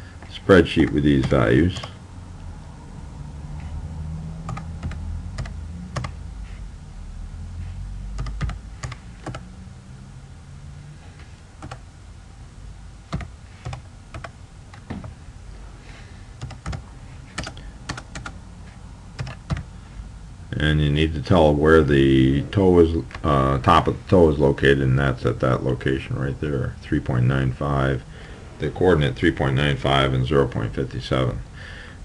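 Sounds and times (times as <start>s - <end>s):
low hum: 0.0s - 30.8s
computer keyboard typing: 4.4s - 6.2s, 8.2s - 9.5s, 11.6s - 11.8s, 13.1s - 14.8s, 16.4s - 18.4s, 19.2s - 19.7s.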